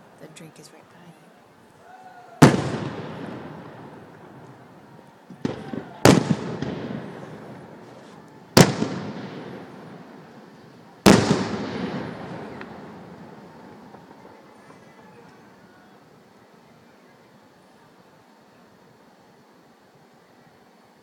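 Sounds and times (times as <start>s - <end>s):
firework crack: 0.0s - 20.2s
firework booms with echo: 2.4s - 4.7s, 5.3s - 14.4s.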